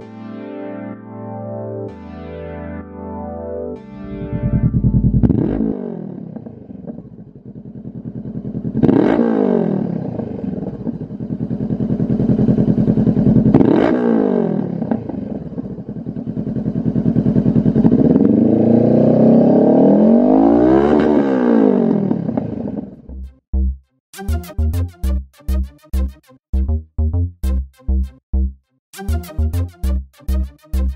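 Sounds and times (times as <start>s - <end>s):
motorcycle engine idling and revving: 4.1s - 23.4s.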